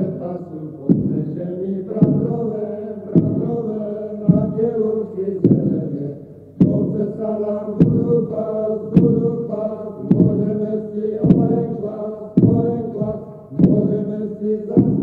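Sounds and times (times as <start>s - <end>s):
droning chant-like singing: 0.0s - 15.0s
sharp thumps: 0.9s - 1.3s, 2.0s - 2.4s, 3.2s - 3.6s, 5.4s - 5.8s, 6.6s - 7.0s, 10.1s - 10.5s, 11.2s - 11.8s, 12.4s - 14.0s.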